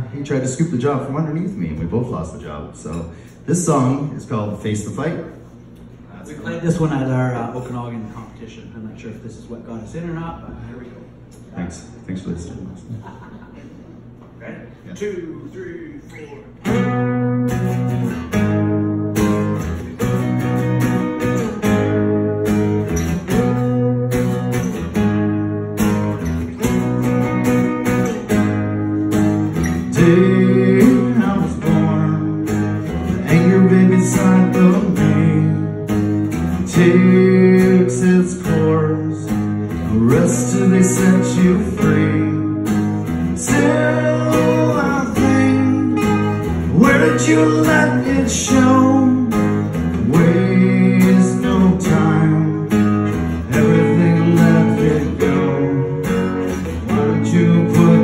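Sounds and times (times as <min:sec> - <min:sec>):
acoustic guitars strummed: 0:16.5 - 0:58.0
man singing: 0:29.8 - 0:35.9, 0:36.6 - 0:42.7, 0:43.4 - 0:58.0.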